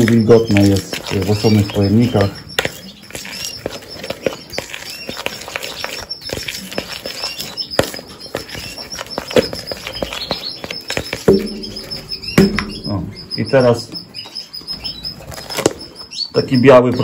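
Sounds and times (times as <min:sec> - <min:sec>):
canaries chirping: 0:00.0 - 0:17.0
sharp clicks and taps: 0:11.0 - 0:13.3.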